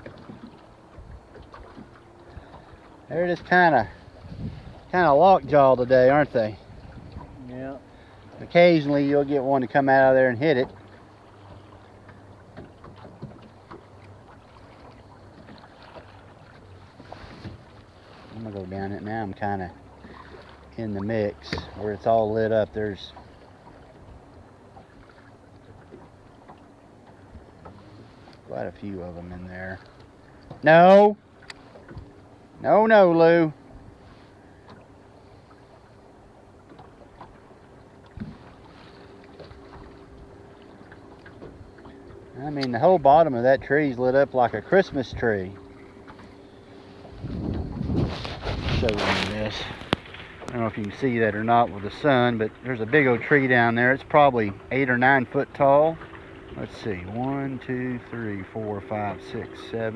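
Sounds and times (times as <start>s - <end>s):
low steady hum: 0.0s - 59.9s
water and wind noise: 0.0s - 59.9s
waves lapping against hull: 0.0s - 59.9s
faint ticks: 31.4s - 32.1s.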